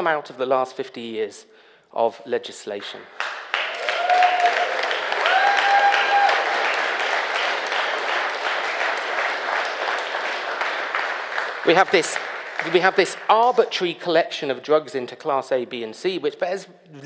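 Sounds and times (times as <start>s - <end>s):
audience applauding: 3.2s - 13.6s.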